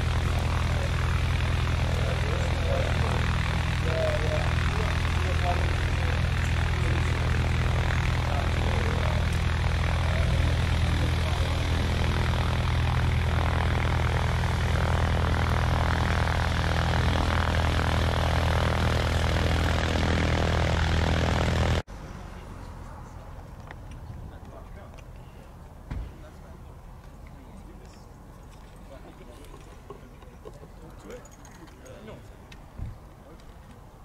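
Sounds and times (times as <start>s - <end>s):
helicopter engine and rotors droning: 0.0s - 25.6s.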